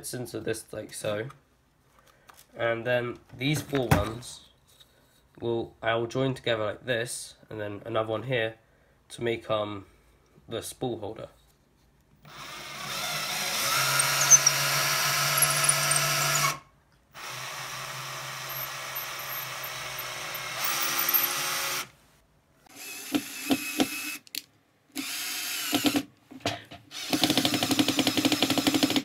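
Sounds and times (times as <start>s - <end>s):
cordless drill drilling into wood: 12.3s - 16.6s, 17.2s - 21.9s, 25.0s - 26.0s, 26.9s - 29.0s.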